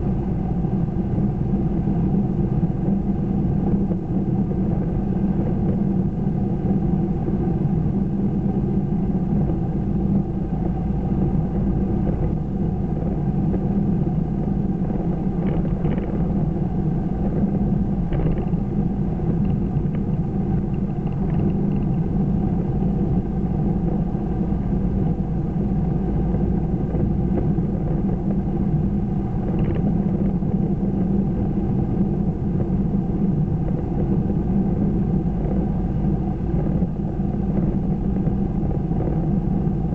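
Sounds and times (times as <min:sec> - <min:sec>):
car engine and road rumble: 0:00.0 - 0:39.9.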